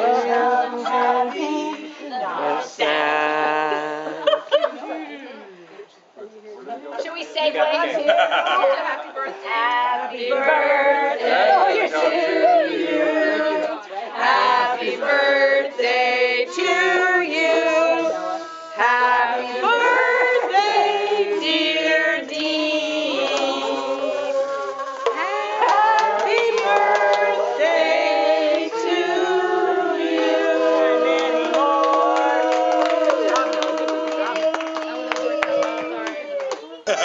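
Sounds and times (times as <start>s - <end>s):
group making music: 10.6s - 34.7s.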